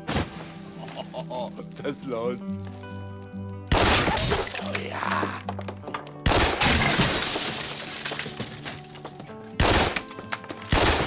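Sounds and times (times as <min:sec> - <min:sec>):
music: 0:00.0 - 0:11.0
crash of something shattering: 0:06.6 - 0:08.8.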